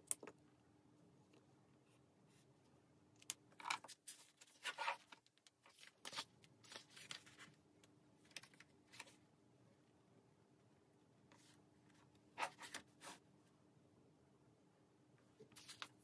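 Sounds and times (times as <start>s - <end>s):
book pages turning: 3.6s - 7.6s, 12.4s - 13.2s, 15.5s - 16.0s.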